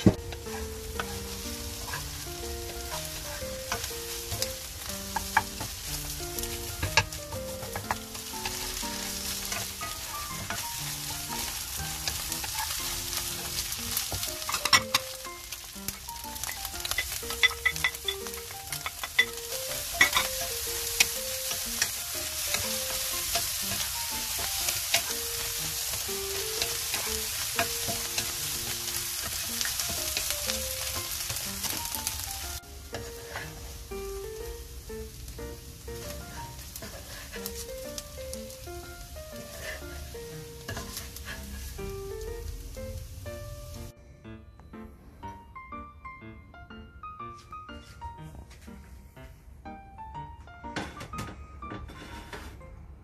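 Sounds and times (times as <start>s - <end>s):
food sizzling in a frying pan: 0.0s - 43.9s
spatula scraping a pan: 0.2s - 5.8s, 6.4s - 15.0s, 16.6s - 32.1s, 32.9s - 33.8s, 36.0s - 37.8s, 39.4s - 41.8s, 51.8s - 52.6s
spatula clacking against pan: 16.4s - 28.4s, 40.7s - 41.5s.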